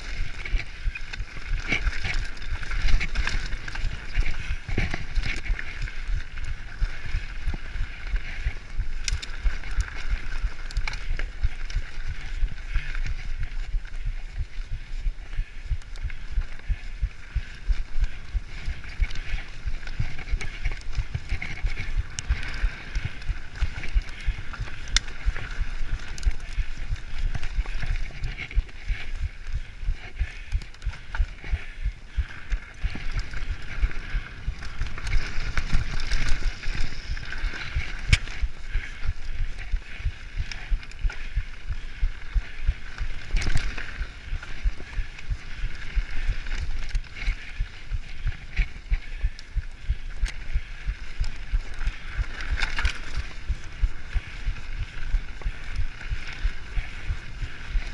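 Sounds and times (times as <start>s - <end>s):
bike rattling over rough trail: 0.0s - 57.9s
tyre and wind noise: 0.0s - 57.9s.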